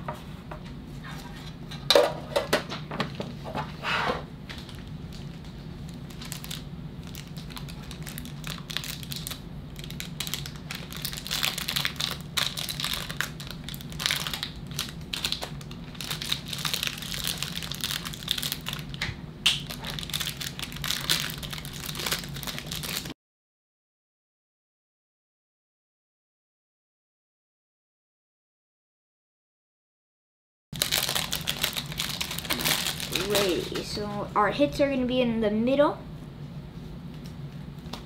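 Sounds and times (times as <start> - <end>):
steady low hum: 0.0 - 23.1, 30.8 - 38.0
plastic wrapping crinkling: 4.5 - 23.1, 30.8 - 34.0.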